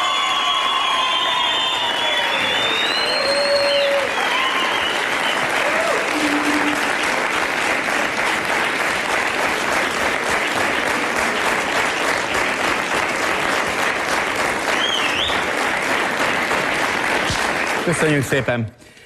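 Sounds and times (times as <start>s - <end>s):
audience applauding: 0.0s - 18.7s
wavering high tone: 6.1s - 7.0s.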